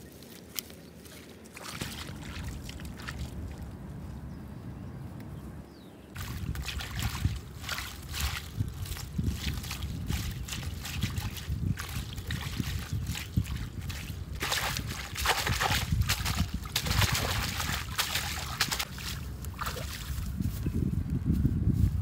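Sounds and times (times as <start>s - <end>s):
shallow water sloshing: 1.1s - 4.1s, 6.2s - 20.2s
low rumble: 1.8s - 12.9s.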